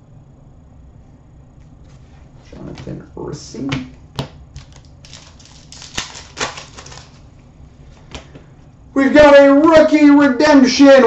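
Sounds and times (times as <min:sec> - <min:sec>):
steady low hum: 0:00.0 - 0:11.0
card tapping on counter: 0:03.7 - 0:04.8.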